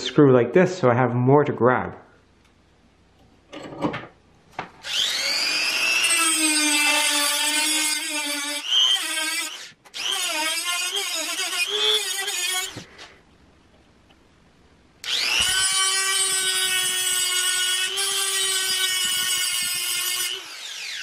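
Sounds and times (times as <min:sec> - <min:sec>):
rotary tool grinding metal: 0:04.9 - 0:12.8, 0:15.0 - 0:21.0.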